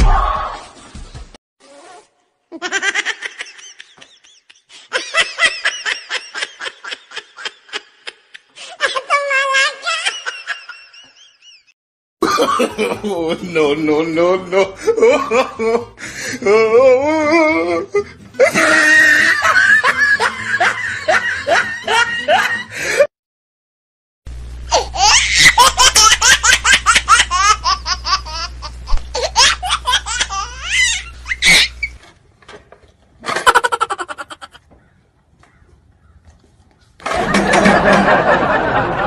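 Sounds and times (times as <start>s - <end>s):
loud human laughter: 2.6s - 9.0s, 9.7s - 13.6s, 14.6s - 23.1s, 24.7s - 31.8s, 33.2s - 34.6s, 37.0s - 39.0s.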